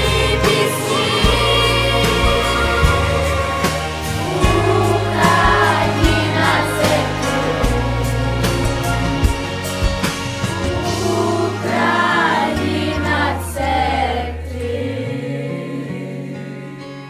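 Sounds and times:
children's choir singing: 0.0s - 9.4s, 10.7s - 17.0s
backing track with bass line: 0.0s - 15.1s.

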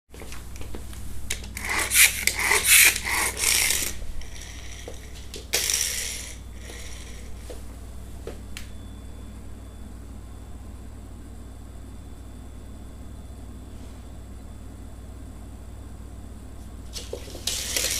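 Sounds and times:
toy car rattling on wooden floor: 1.6s - 7.1s, 17.1s - 17.9s.

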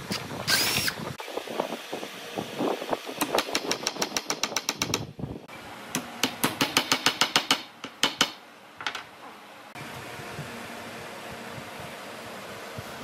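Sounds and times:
hammer tapping wooden wedge: 6.0s - 9.0s.

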